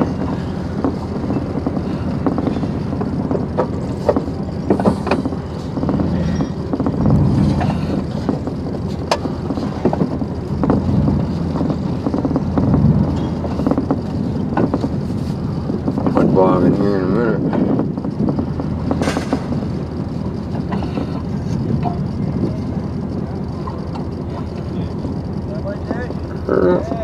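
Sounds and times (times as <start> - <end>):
rattles and clunks: 0.0 - 27.0
vehicle engine and road rumble: 0.0 - 27.0.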